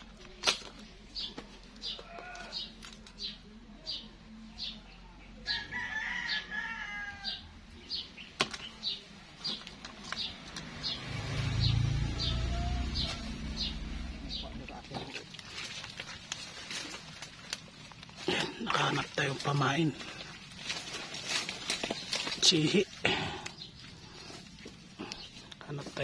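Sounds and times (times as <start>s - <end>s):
bird chirping: 7.8s - 15.9s.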